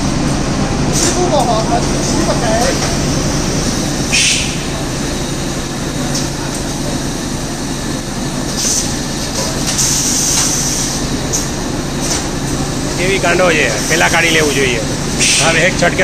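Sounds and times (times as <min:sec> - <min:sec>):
packaging machine humming: 0:00.0 - 0:16.0
short pneumatic hisses: 0:04.1 - 0:04.7, 0:15.2 - 0:15.6.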